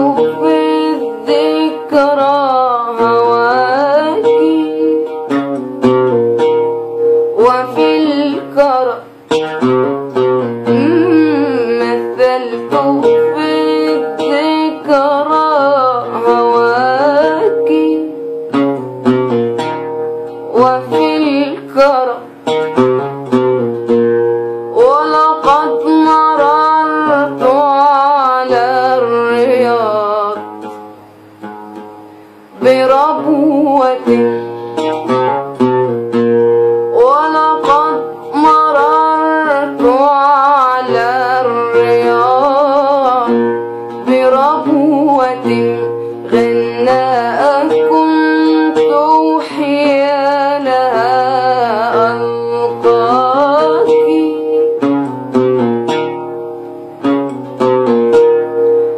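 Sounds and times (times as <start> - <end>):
woman singing: 0.0 - 5.9, 7.3 - 18.4, 20.4 - 22.4, 24.7 - 30.5, 32.5 - 35.2, 36.7 - 55.2
plucked string instrument: 0.0 - 58.9.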